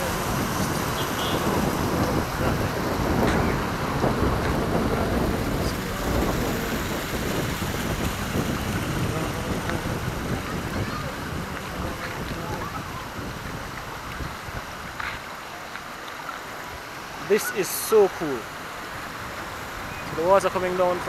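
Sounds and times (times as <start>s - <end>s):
wind buffeting microphone: 0.0s - 15.3s
stream water trickling: 0.0s - 21.0s.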